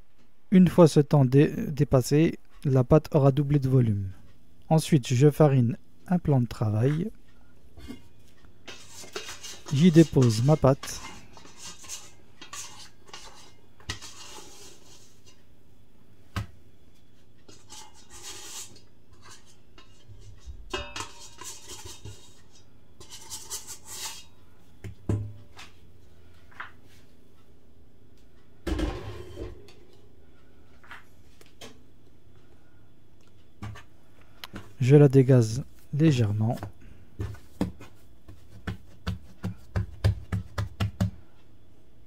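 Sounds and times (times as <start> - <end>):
kitchen clinks knocks and scrapes: 17.4 - 24.3.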